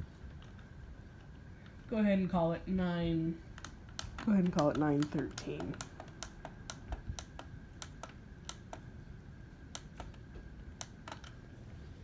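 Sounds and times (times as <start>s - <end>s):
alarm clock buttons clicking: 3.6s - 8.9s.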